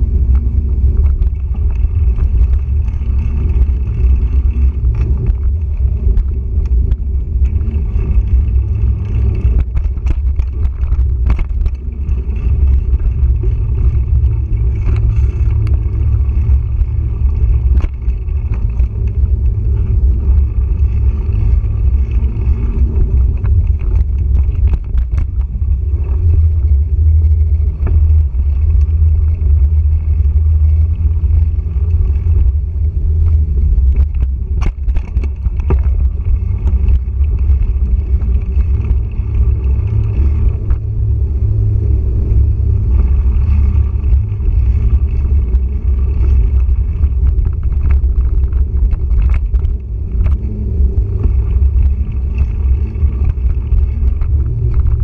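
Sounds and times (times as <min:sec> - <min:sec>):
wind and trail rumble: 0:00.0 - 0:55.0
bike clicks and knocks: 0:00.2 - 0:40.9.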